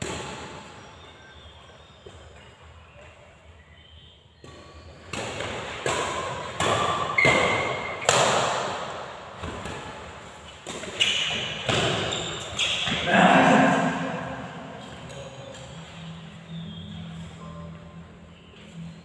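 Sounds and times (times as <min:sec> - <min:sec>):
rackets hitting shuttlecock: 0:00.0 - 0:00.8, 0:04.4 - 0:13.1.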